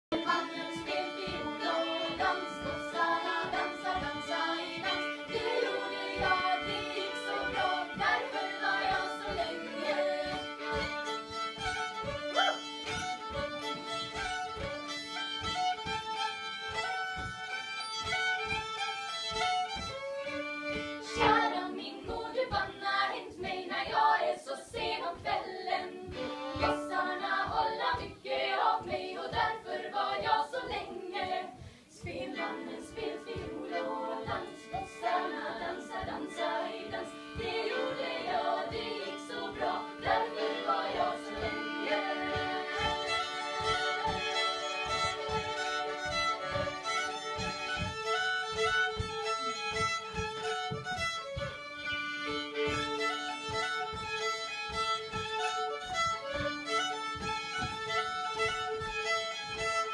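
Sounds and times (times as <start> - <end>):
acoustic fiddle music: 0.0 - 59.9
women singing: 0.1 - 12.6, 21.0 - 49.6.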